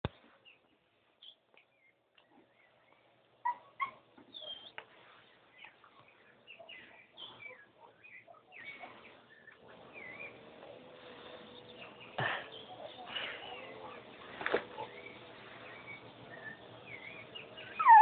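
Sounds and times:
puppy whimpering and yipping: 0:03.4 - 0:04.7, 0:16.3 - 0:18.0.

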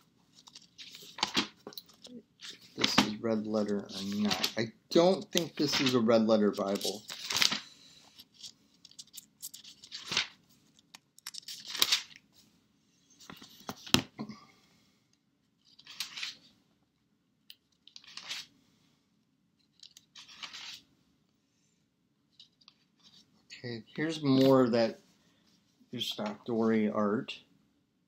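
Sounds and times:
pages turning: 0:00.3 - 0:12.3, 0:13.2 - 0:14.1, 0:15.6 - 0:16.5, 0:17.8 - 0:18.5, 0:19.6 - 0:20.9, 0:24.1 - 0:24.7.

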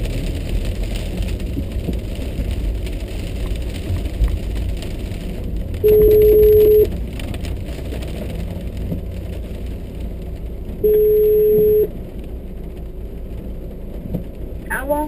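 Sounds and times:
rain: 0:00.0 - 0:15.0
road noise in car: 0:00.0 - 0:15.0
telephone ringback tone: 0:05.9 - 0:06.9, 0:10.8 - 0:11.9.

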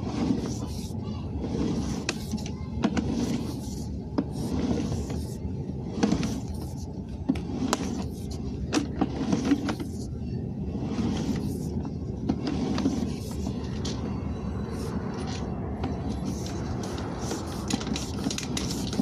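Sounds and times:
sharp clicks and scrapes: 0:00.0 - 0:05.3, 0:05.9 - 0:10.1, 0:10.8 - 0:14.1, 0:15.1 - 0:19.0.

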